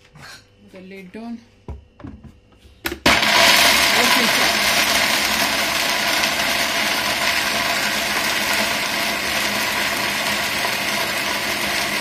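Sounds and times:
blender chopping peanuts: 0:02.9 - 0:12.0.

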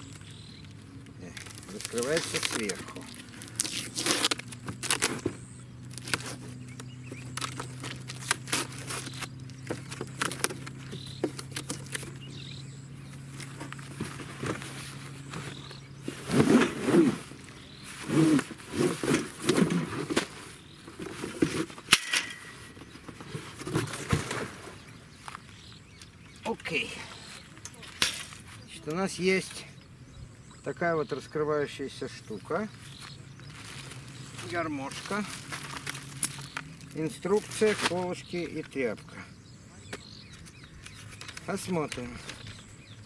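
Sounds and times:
steady low hum: 0:00.0 - 0:43.0
metal frame scraping cardboard: 0:13.9 - 0:24.8
cardboard box rustling: 0:33.4 - 0:38.0.

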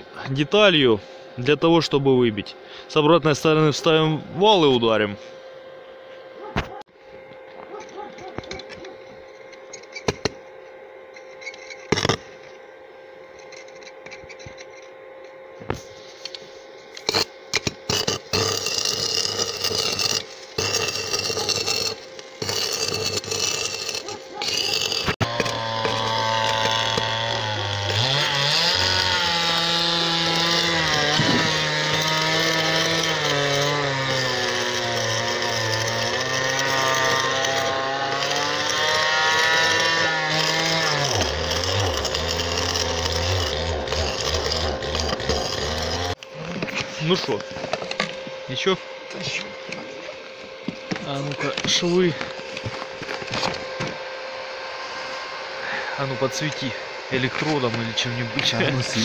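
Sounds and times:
welding arc crackling: 0:16.9 - 0:46.3.

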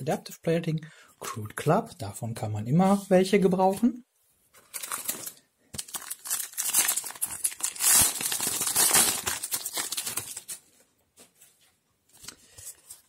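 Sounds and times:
foil wrapper tearing and crinkling: 0:04.7 - 0:10.6.

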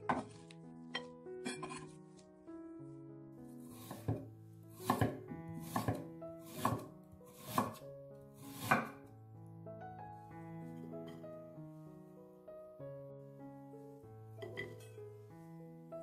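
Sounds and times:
soft piano music: 0:00.0 - 0:16.0
knife chopping on wooden board: 0:03.8 - 0:07.8, 0:08.5 - 0:09.0.

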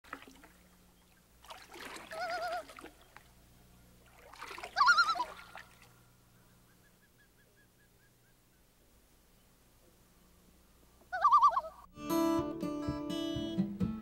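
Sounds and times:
water splashing: 0:00.0 - 0:03.4, 0:04.0 - 0:06.2
loon tremolo call: 0:11.1 - 0:11.9.

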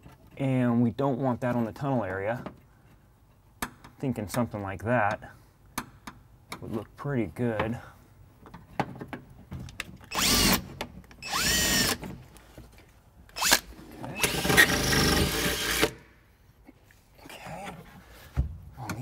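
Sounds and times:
cordless drill whining: 0:10.1 - 0:12.1, 0:13.4 - 0:16.0.

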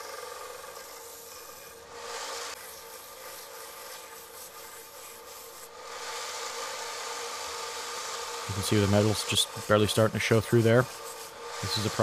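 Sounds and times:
belt sander humming: 0:00.0 - 0:12.0
grinding rasp on sander belt: 0:00.0 - 0:12.0.

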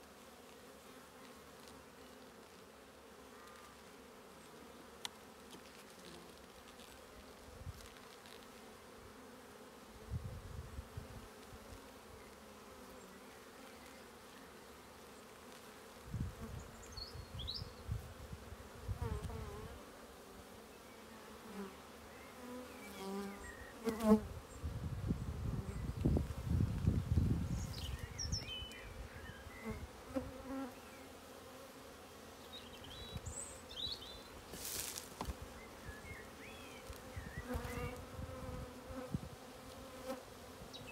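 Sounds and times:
bees humming: 0:10.8 - 0:26.1, 0:27.2 - 0:40.9.

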